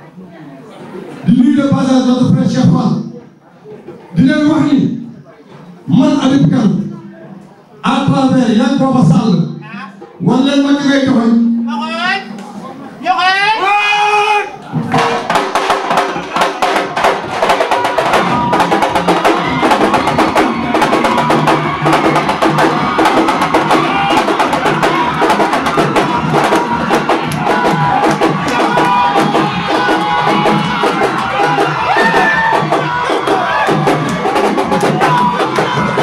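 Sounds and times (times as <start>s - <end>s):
loud music with fast drumming: 14.8s - 36.0s.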